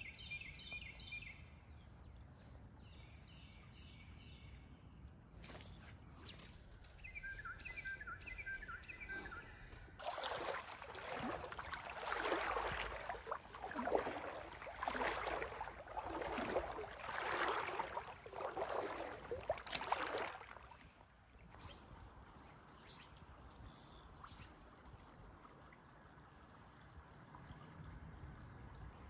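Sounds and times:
bird whistling song: 7.0s - 9.6s
water sloshing from wading: 10.0s - 28.0s.

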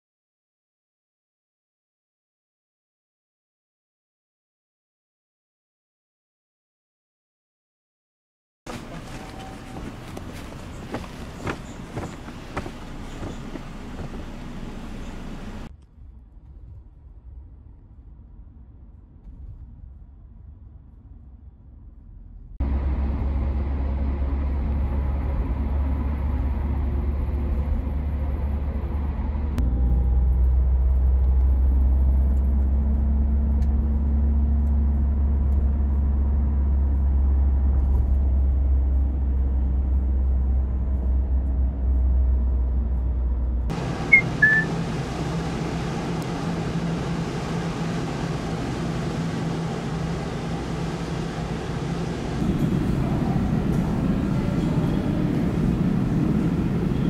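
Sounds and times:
outdoor hum and hiss: 8.7s - 15.8s
car interior engine rumble: 8.7s - 57.0s
short high chirps: 44.1s - 44.7s.

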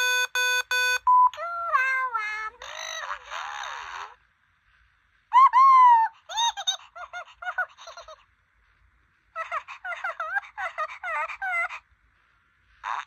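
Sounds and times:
toy electronic voice babbling: 1.3s - 4.2s.

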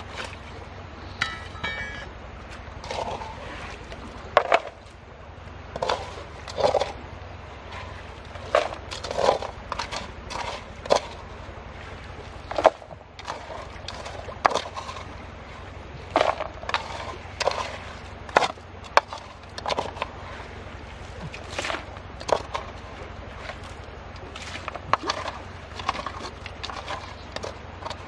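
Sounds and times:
steady low hum: 0.0s - 28.0s
wet gravel scraped by hand: 7.8s - 11.2s.

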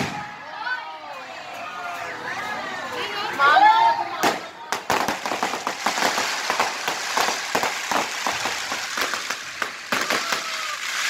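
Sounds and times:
fireworks crackling and banging: 0.0s - 0.6s, 3.9s - 11.0s.

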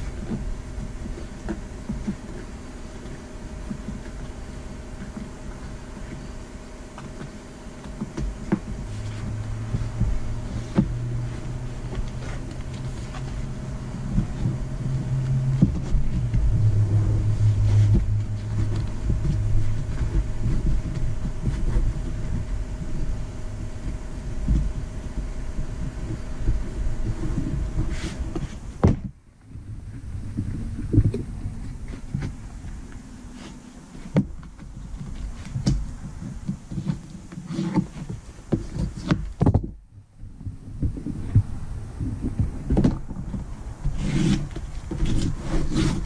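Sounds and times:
steady low hum: 0.0s - 46.0s
vinyl rustling and crinkling: 0.0s - 46.0s
low rumble: 7.8s - 36.7s, 39.7s - 46.0s.

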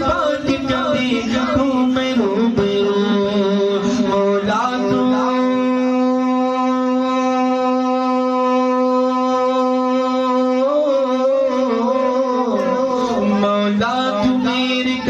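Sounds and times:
man singing a long note: 0.0s - 15.0s.

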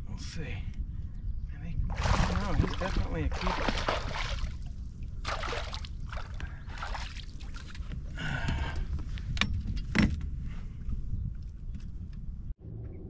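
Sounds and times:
steady low rumble: 0.0s - 13.0s
water sloshing and dripping: 1.9s - 8.0s.

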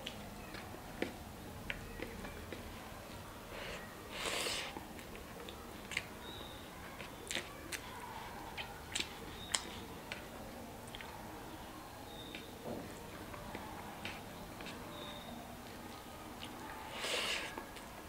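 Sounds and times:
person chewing food: 0.0s - 11.1s
sharp wet clicks: 5.0s - 11.2s.

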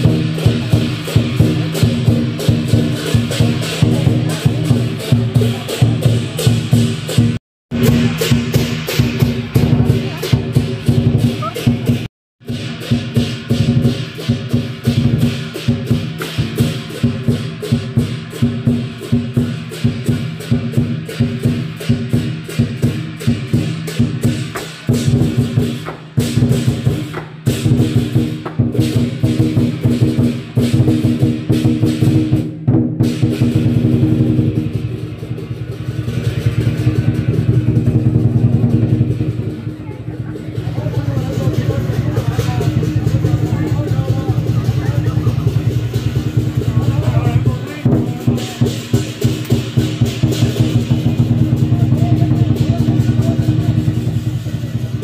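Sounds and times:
big drum beaten fast: 0.0s - 55.0s
cymbals clashing: 0.0s - 55.0s.

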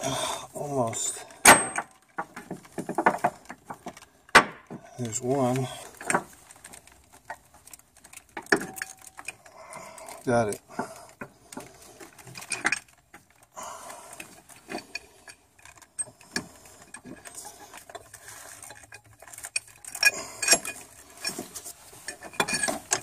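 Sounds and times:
metal clinks and scrapes: 5.0s - 13.5s, 14.2s - 23.0s.

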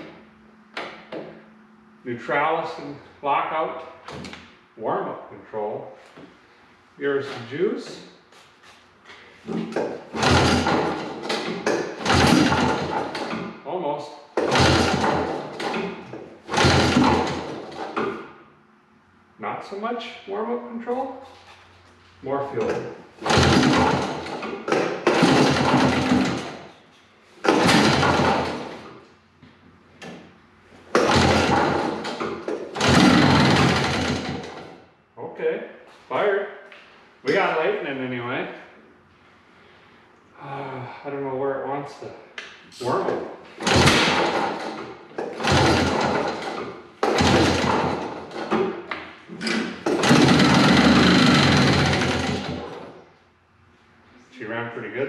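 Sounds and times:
outboard engine cranking and sputtering: 10.1s - 13.4s, 14.4s - 15.9s, 16.5s - 18.1s, 23.2s - 26.6s, 27.5s - 28.7s, 31.0s - 34.7s, 43.6s - 48.6s, 49.5s - 52.8s.

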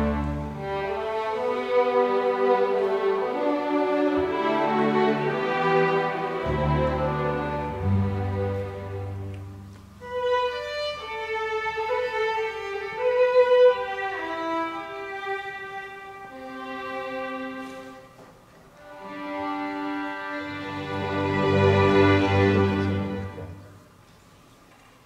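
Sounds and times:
string orchestra playing: 0.0s - 24.0s.

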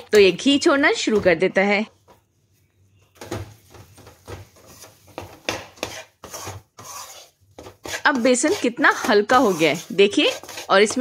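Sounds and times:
metal spatula scraping a pan: 4.6s - 11.0s.

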